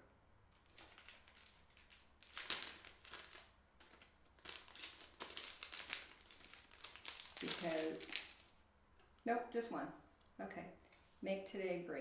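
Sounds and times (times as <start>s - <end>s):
packaging crinkling: 0.6s - 8.6s.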